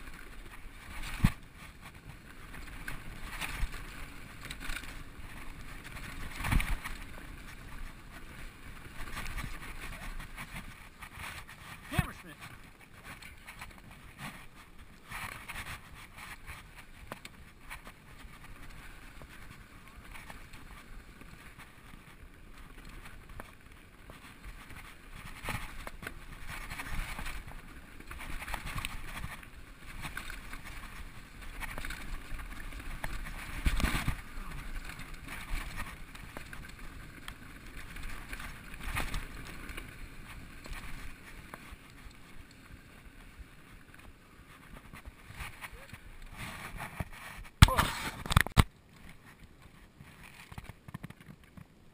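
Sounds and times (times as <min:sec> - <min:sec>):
bike rattling and knocking: 0:00.0 - 0:11.8, 0:12.5 - 0:42.0
bike tyres rolling over dirt and stones: 0:00.0 - 0:51.9.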